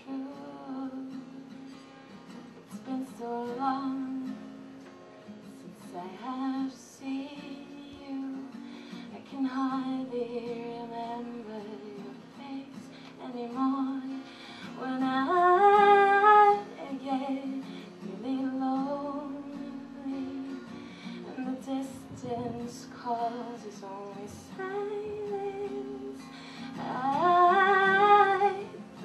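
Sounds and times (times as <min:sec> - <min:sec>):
woman singing: 0:00.0 - 0:01.8, 0:02.7 - 0:04.7, 0:05.4 - 0:29.0
acoustic guitar: 0:00.0 - 0:29.0.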